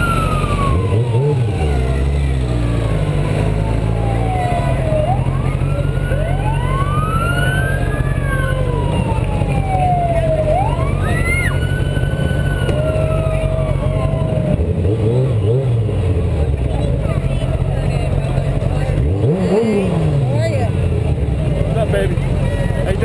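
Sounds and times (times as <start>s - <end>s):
emergency sirens wailing: 0.0s - 16.6s
low engine rumble: 0.0s - 23.0s.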